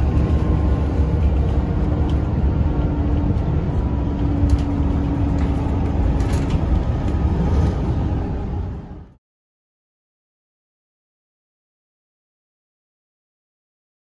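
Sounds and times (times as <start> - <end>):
car road noise rumble: 0.0 - 9.2.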